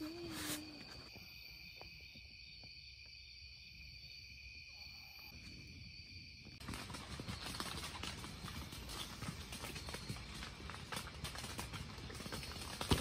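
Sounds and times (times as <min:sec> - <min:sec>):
acorns falling on nylon tent roof: 0:06.6 - 0:13.0.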